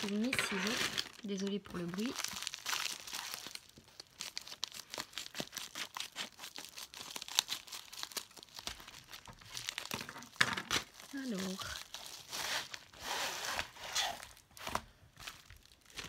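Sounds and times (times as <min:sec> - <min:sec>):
scissors cutting foil packet: 0:00.0 - 0:14.4
foil strip crumpled by hand: 0:00.0 - 0:16.0.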